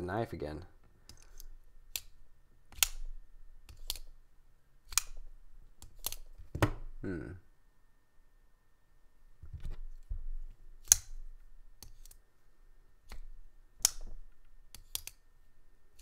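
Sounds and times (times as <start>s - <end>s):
folding knife clicking: 1.1s - 3.0s, 3.7s - 4.1s, 4.9s - 5.2s, 13.8s - 14.1s, 14.7s - 15.2s.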